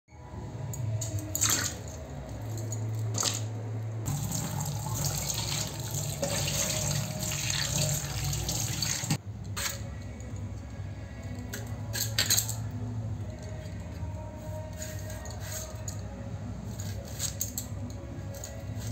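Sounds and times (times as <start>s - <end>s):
tap water pouring into steel bowl: 4.1s - 9.2s.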